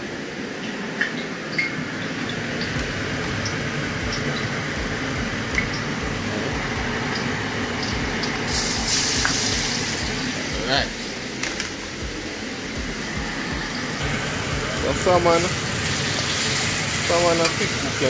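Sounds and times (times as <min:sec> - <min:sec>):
oil hissing and crackling: 0:02.1 - 0:18.0
fish sizzling in hot oil: 0:06.9 - 0:18.0.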